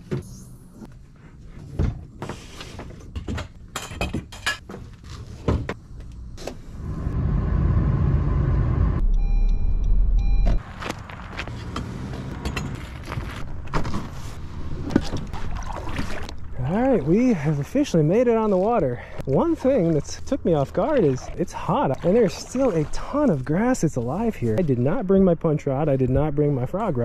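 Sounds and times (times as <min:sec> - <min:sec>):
steady low rumble: 0:06.2 - 0:11.2
short electronic beeps: 0:09.0 - 0:10.6.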